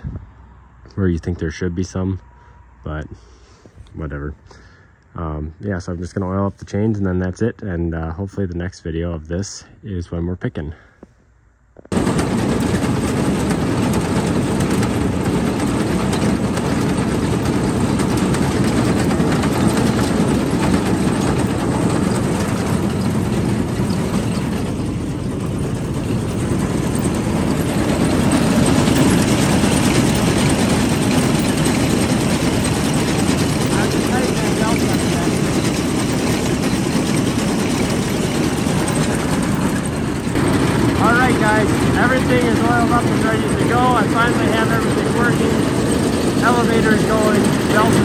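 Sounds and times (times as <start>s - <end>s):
tractor engine running: 11.8s - 48.0s
corn picker machinery turning: 11.9s - 48.0s.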